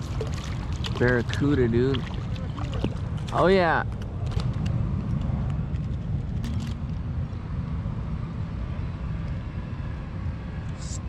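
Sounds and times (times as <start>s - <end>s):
splashy clicks: 0.0s - 3.4s.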